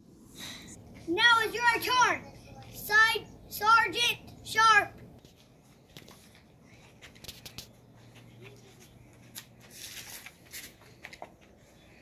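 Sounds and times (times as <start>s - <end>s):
soft rustling: 5.2s - 11.8s.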